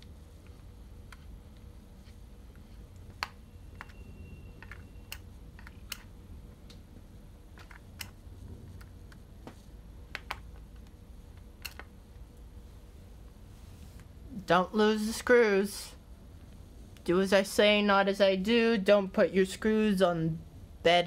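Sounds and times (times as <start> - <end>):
low background hum: 0.0 - 21.0.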